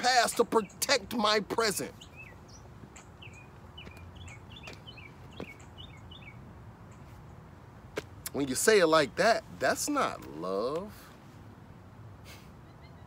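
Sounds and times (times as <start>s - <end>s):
faint background noise: 0.0s - 13.0s
small bird chirping: 1.9s - 7.4s.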